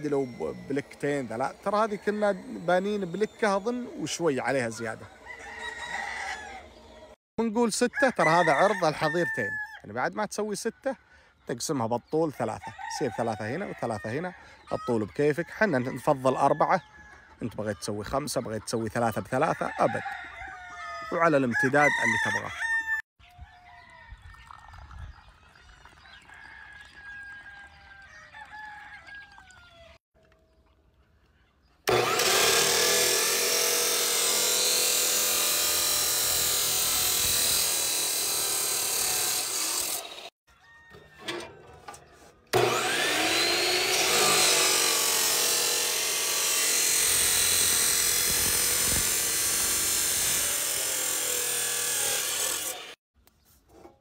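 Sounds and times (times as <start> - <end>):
cut-off saw grinding steel: 0.0 - 7.0, 31.9 - 53.0.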